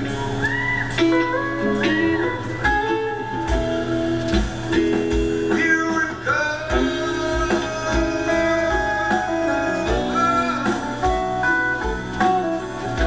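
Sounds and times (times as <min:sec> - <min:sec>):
melody with sliding bending notes: 0:00.0 - 0:13.0
low steady beat: 0:02.6 - 0:13.0.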